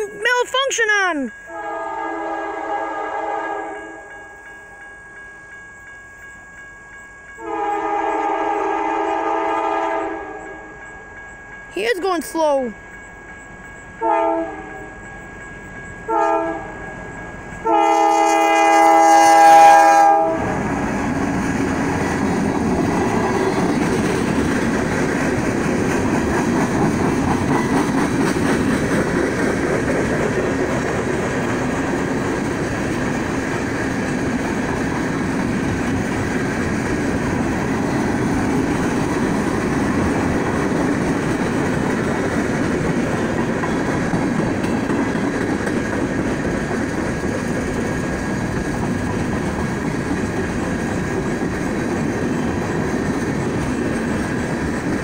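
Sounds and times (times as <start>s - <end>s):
locomotive horn blasts: 1.5s - 4.1s, 7.4s - 10.7s, 14.0s - 14.9s, 16.1s - 16.8s, 17.6s - 20.6s.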